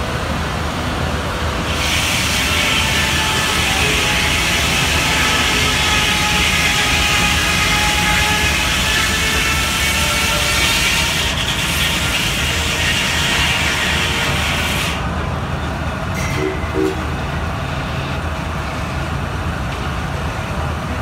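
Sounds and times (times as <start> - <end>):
sawmill machinery rumbling: 0.0 - 21.0
loud high steam hiss: 1.5 - 15.1.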